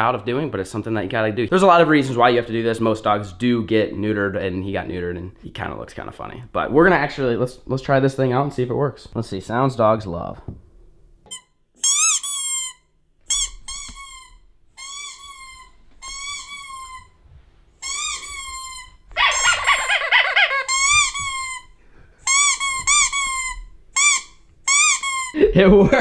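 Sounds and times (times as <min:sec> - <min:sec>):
squeaky toy squeaks: 0:11.3 - 0:17.2, 0:17.8 - 0:25.4.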